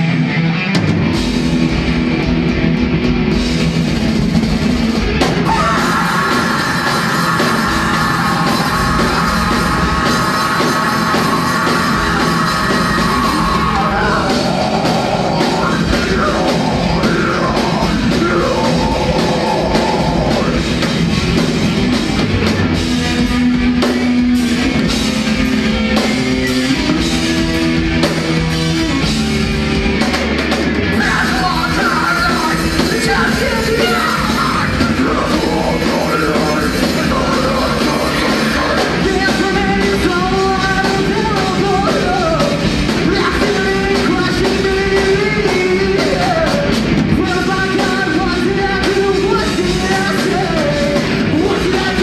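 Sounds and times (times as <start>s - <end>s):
rock band playing: 0.0s - 52.0s
person singing: 5.4s - 20.9s, 30.9s - 52.0s.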